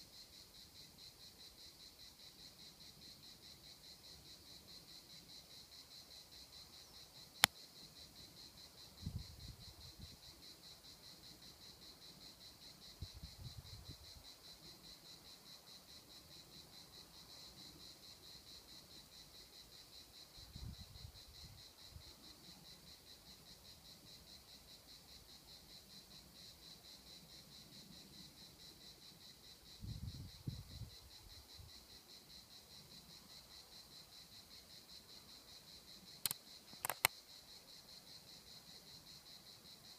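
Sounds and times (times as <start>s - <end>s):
insect chorus trilling: 0.0s - 39.9s
sharp click: 36.2s - 37.2s.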